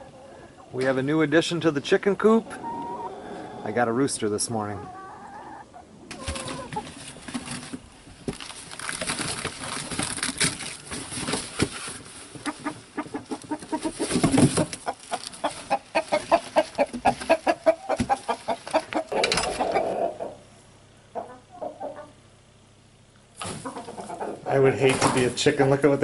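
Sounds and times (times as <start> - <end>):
chickens clucking: 0.0 - 7.8, 12.1 - 22.3, 23.4 - 25.3
rustling and handling noise: 6.1 - 17.4.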